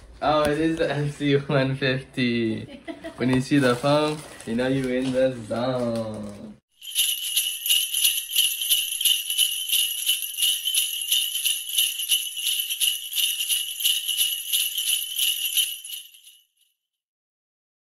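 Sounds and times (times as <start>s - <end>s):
sleigh bells jingling: 6.7s - 16.7s.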